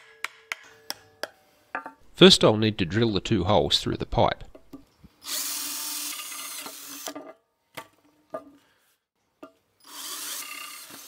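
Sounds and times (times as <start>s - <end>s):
cordless drill boring steel pipe: 9.8s - 11.0s.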